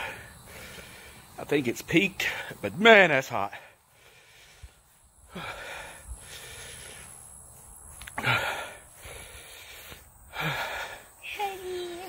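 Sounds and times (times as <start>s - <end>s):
man breathing hard: 0.0s - 1.4s, 3.5s - 11.8s
man blowing exhale: 8.1s - 11.0s.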